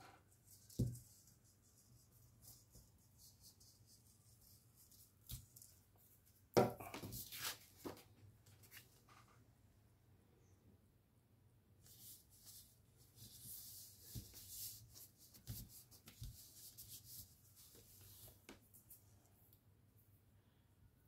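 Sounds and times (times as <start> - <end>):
paper rustling and scraping: 7.0 - 9.3.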